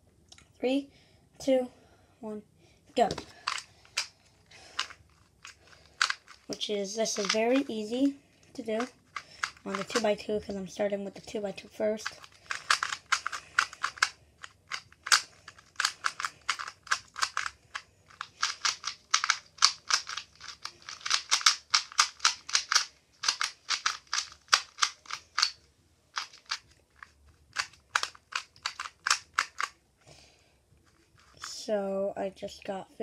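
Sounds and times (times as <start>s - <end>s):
puzzle cube plastic clicking: 3.0s - 7.8s, 8.5s - 10.2s, 12.0s - 29.8s.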